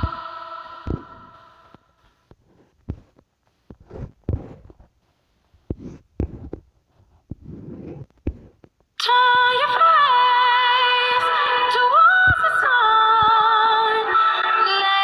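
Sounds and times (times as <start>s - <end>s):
fingers tapping on touchscreen: 5.7s - 6.7s, 7.3s - 8.9s.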